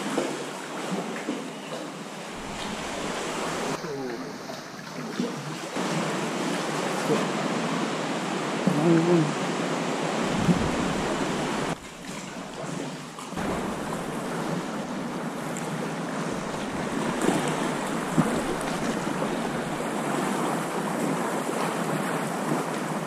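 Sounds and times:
water slapping kayak hull: 0.0s - 23.0s
wind buffeting microphone: 2.4s - 3.8s, 10.2s - 11.8s.

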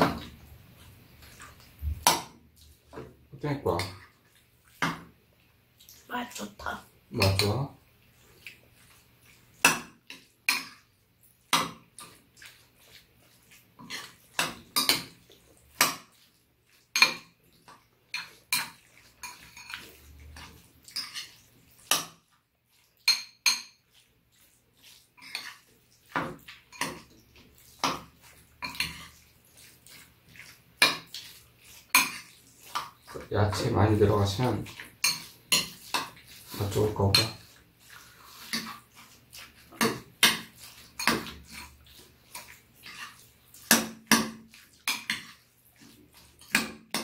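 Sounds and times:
spoons clinking on ceramic bowls: 18.1s - 22.1s, 23.0s - 23.8s, 28.6s - 29.2s, 34.7s - 37.5s, 39.8s - 41.6s.

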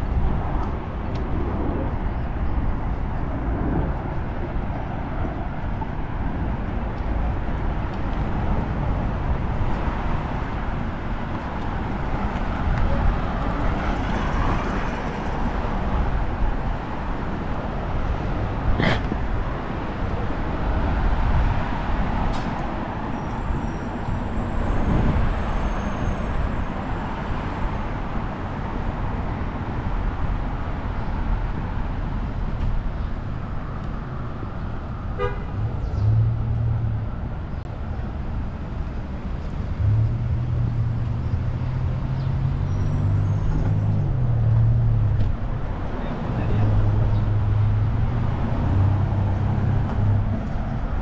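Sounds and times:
passing cars rumble: 0.0s - 51.0s
car horn toot: 35.2s - 35.5s.

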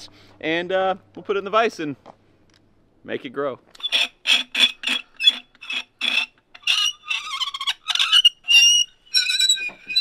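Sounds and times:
metal squeaking and creaking in vise: 3.8s - 10.0s.

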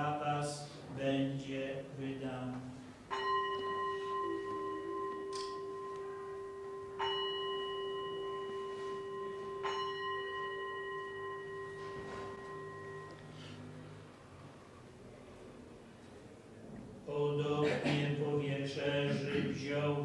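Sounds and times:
bell ringing: 3.1s - 13.8s.

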